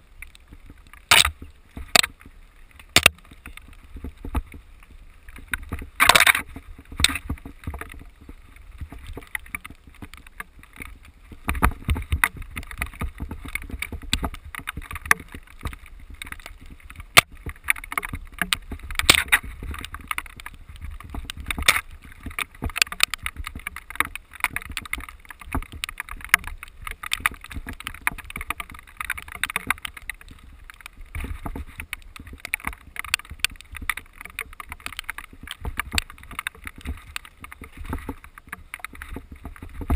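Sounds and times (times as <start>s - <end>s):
wind rumble on microphone: 0.0s - 39.9s
sharp clicks and knocks: 0.2s - 4.6s, 5.4s - 39.9s
bike rattling: 5.4s - 39.9s.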